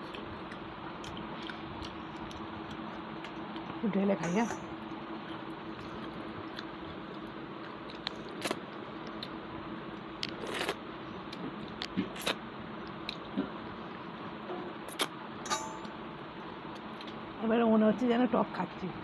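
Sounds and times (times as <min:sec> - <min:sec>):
chewing rice: 0:00.0 - 0:03.8, 0:04.9 - 0:13.4.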